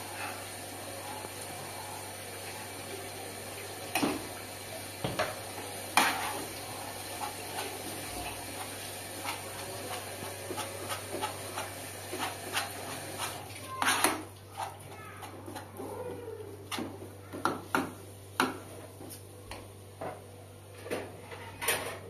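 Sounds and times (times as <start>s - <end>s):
metal spoon scraping a pan: 6.0s - 6.5s, 8.5s - 15.7s.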